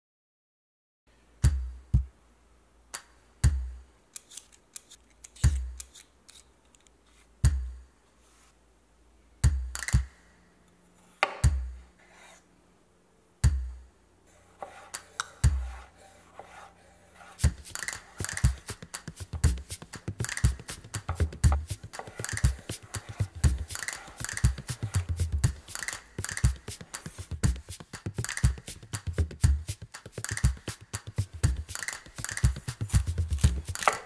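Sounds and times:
background music with deep beat: 3.4s - 3.9s, 5.4s - 5.8s, 7.4s - 7.9s, 9.4s - 10.2s, 11.4s - 11.9s, 13.4s - 13.9s, 15.4s - 15.8s, 17.4s - 34.0s.

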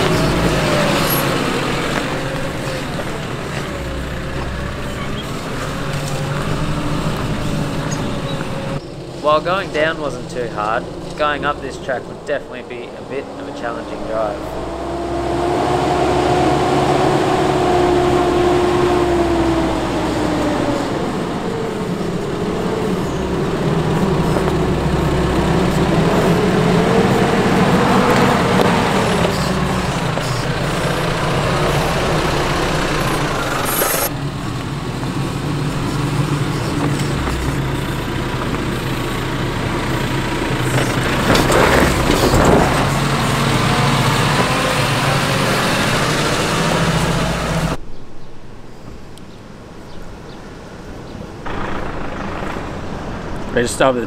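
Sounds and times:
engine running at low revs: 0.0s - 47.8s, 50.8s - 54.0s
tyres crunching over rock: 40.5s - 44.6s.

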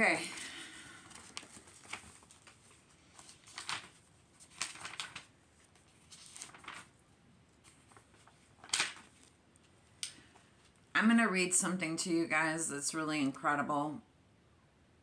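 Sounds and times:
book pages rustling: 0.1s - 10.8s.

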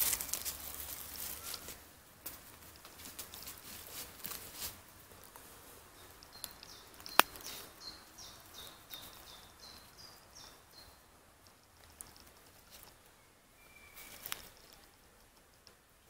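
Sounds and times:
leaf litter rustling: 0.0s - 6.5s, 13.6s - 14.9s
small bird singing: 5.6s - 15.2s.

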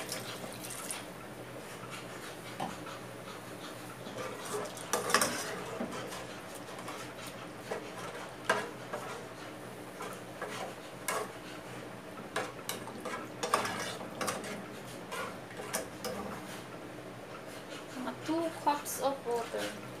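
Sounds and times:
metal spoon stirring in pot: 4.0s - 9.4s, 10.0s - 11.4s, 12.3s - 16.4s.

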